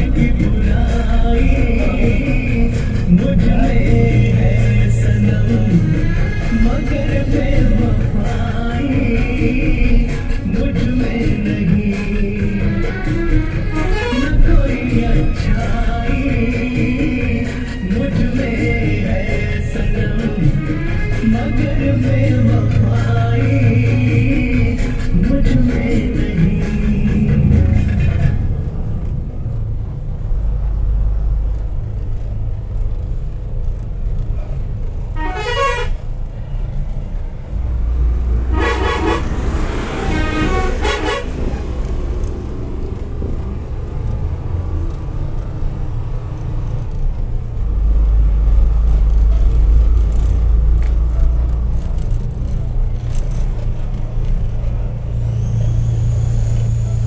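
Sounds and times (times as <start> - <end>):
diesel engine running: 0.0 - 57.0
truck horn blasts: 13.6 - 14.6, 35.1 - 36.1, 38.4 - 41.8.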